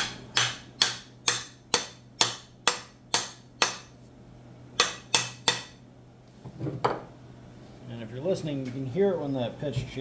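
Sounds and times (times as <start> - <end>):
hammer striking wooden axe handle: 0.0 - 3.9, 4.8 - 5.8.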